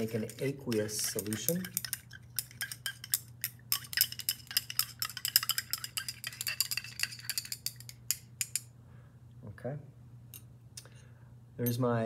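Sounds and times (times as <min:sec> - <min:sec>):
glass rod clinking in beaker: 0:00.0 - 0:08.7.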